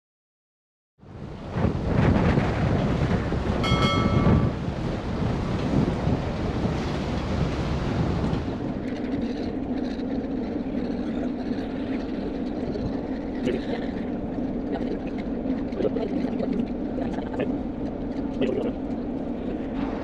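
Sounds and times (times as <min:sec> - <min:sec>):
ferry engines droning: 0:01.1 - 0:20.0
gulls calling: 0:03.6 - 0:05.1.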